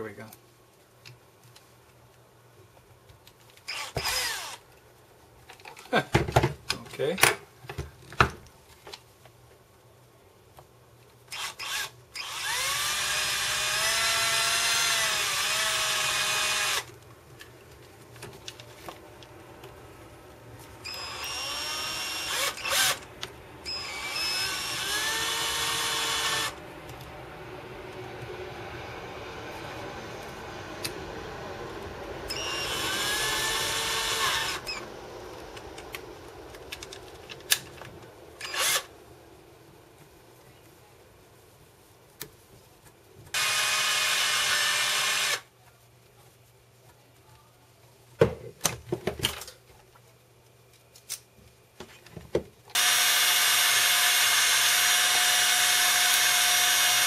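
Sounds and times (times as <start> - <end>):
cordless drill motor whine: 3.7 - 4.6, 11.3 - 16.9, 20.8 - 26.6, 32.3 - 34.9, 38.4 - 38.9, 43.4 - 45.4, 52.8 - 57.0.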